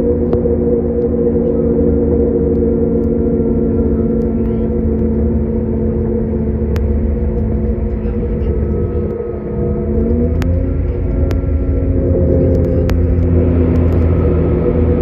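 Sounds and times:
train interior drone: 0:00.0 - 0:15.0
train wheels rumbling on track: 0:00.0 - 0:15.0.

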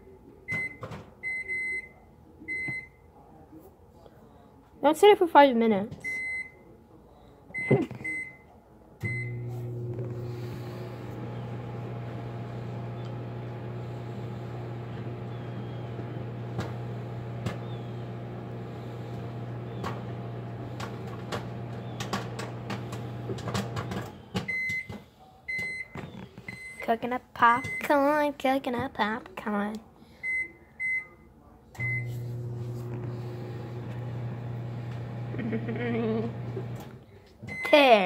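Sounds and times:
microwave keypad beeps: 0:09.1 - 0:09.4, 0:23.8 - 0:24.9, 0:25.5 - 0:26.8, 0:27.5 - 0:27.9, 0:31.8 - 0:32.2
microwave oven humming: 0:09.1 - 0:24.6, 0:31.8 - 0:37.7.

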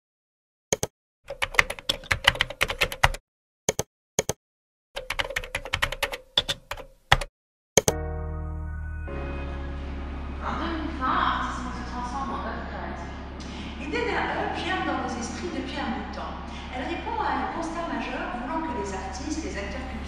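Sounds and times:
keyboard typing: 0:00.7 - 0:04.4, 0:05.0 - 0:08.0
sustained music chord: 0:07.9 - 0:16.5.

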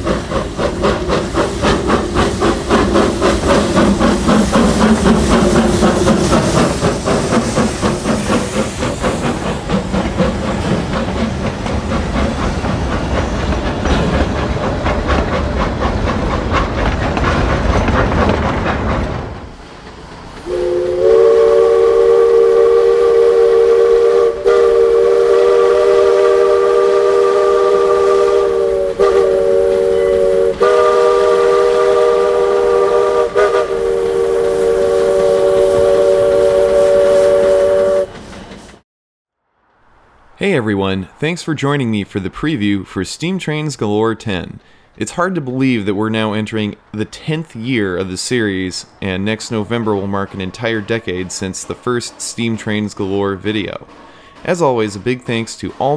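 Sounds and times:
steam hiss: 0:00.0 - 0:38.8, 0:50.7 - 0:55.9
steam locomotive exhaust beats: 0:00.0 - 0:38.8, 0:41.0 - 0:55.9
steam whistle chord: 0:20.5 - 0:38.1.

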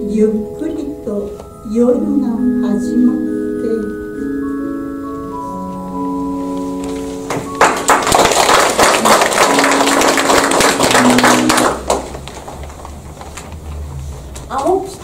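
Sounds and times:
soft instrumental music: 0:00.0 - 0:14.4
audience applauding: 0:07.3 - 0:12.8.

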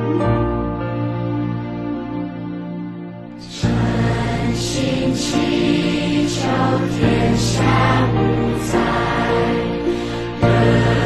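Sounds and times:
slow background music: 0:00.0 - 0:11.0.

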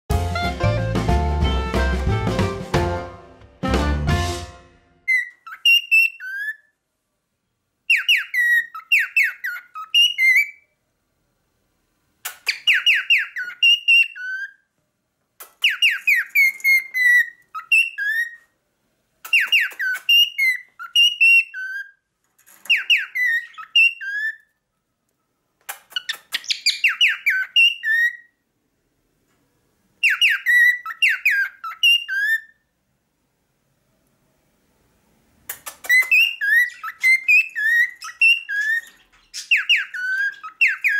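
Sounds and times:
cockatiel whistling: 0:05.1 - 0:06.7, 0:07.9 - 0:10.6, 0:12.4 - 0:14.6, 0:15.6 - 0:18.4, 0:19.3 - 0:22.0, 0:22.7 - 0:24.4, 0:25.9 - 0:28.3, 0:30.0 - 0:32.6, 0:35.6 - 0:40.9.

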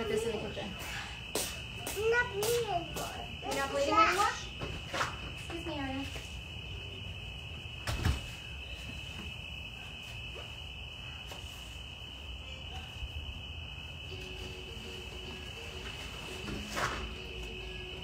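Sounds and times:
crickets trilling: 0:00.0 - 0:18.0
thump: 0:07.8 - 0:08.4.

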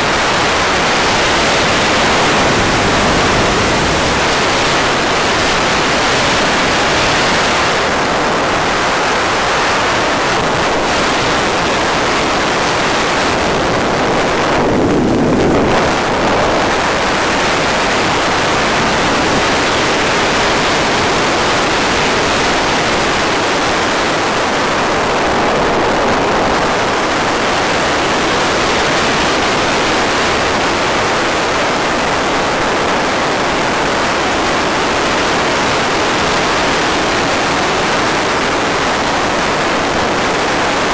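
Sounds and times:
loud rushing wind: 0:00.0 - 0:31.1.

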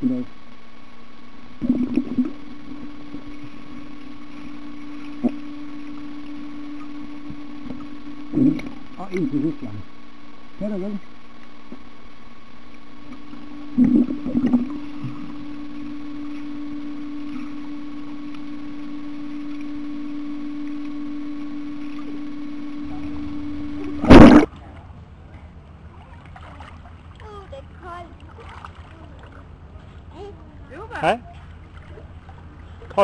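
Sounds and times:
muffled underwater hum: 0:00.0 - 0:33.0
loud burst of noise: 0:00.2 - 0:24.5
underwater bubbling bursts: 0:01.5 - 0:09.0, 0:12.8 - 0:18.4
open-air background: 0:22.4 - 0:33.0.

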